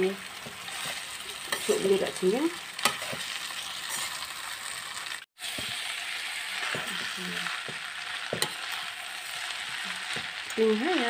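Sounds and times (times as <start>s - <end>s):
noodles sizzling in pan: 0.0s - 11.0s
metal spatula scraping pan: 0.4s - 4.2s, 6.5s - 10.4s.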